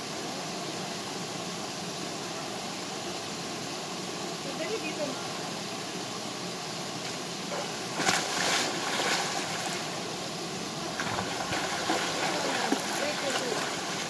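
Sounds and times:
waterfall and stream rushing: 6.9 - 14.0
swimmer splashing: 7.5 - 10.1, 10.7 - 14.0.

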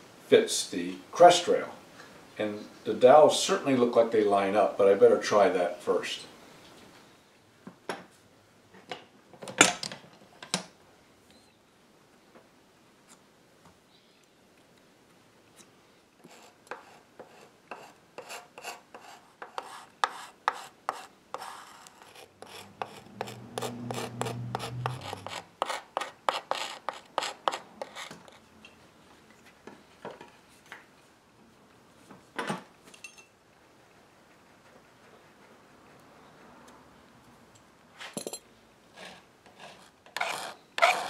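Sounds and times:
hand tool scraping wood: 16.2 - 28.4, 39.0 - 41.0
loud scrape or knock: 21.4 - 25.8.

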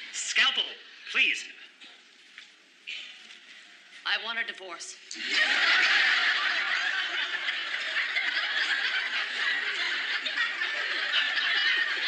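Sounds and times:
studio audience laughing: 5.1 - 12.0.

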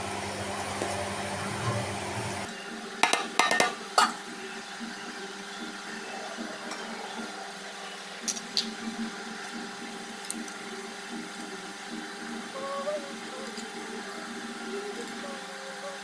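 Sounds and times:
faint hum: 0.0 - 16.0
clinks against steel bowl: 3.0 - 4.2.

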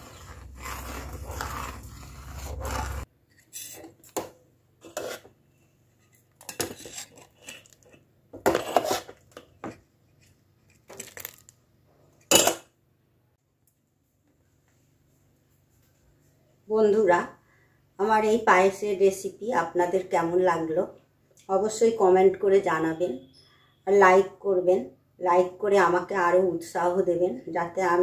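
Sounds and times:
metal ladle scraping a pot: 0.0 - 4.1, 4.8 - 5.4, 6.0 - 9.2.

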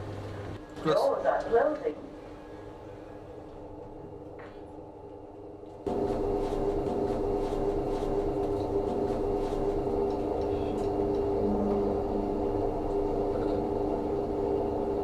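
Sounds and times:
lift car hum: 8.0 - 15.0
low steady drone: 9.6 - 15.0.

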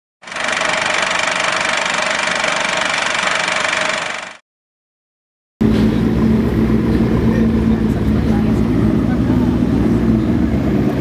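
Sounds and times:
whirring noise with tones: 0.2 - 4.4.

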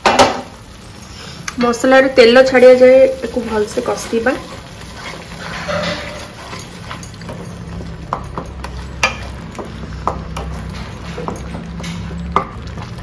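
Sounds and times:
spatula scraping metal pan: 3.2 - 7.2.

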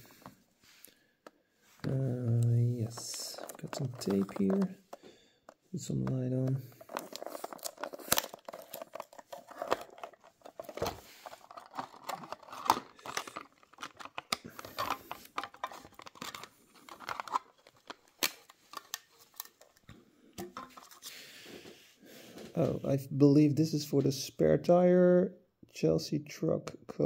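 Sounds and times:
plastic crinkling and clicking: 1.2 - 21.1.

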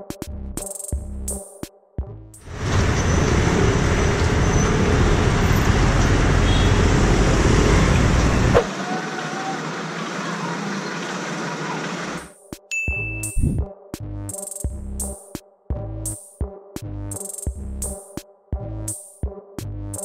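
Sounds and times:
traffic noise: 2.4 - 12.3.

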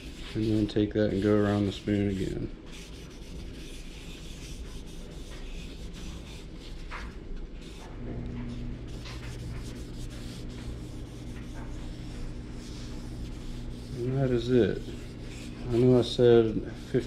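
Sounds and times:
low steady hum: 0.0 - 17.0
cloth rag rubbing on wood: 7.6 - 17.0.

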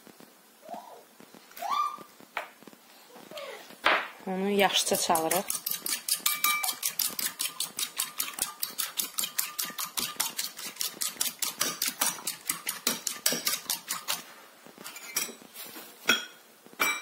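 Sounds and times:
fork beating egg in bowl: 4.6 - 14.3.

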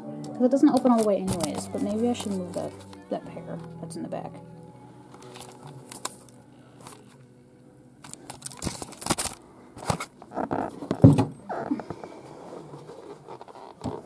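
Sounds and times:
shuffling: 0.5 - 7.3.

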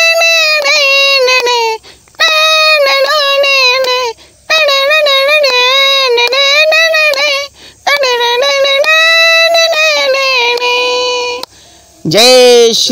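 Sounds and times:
sharp percussive clicks: 6.2 - 10.8.

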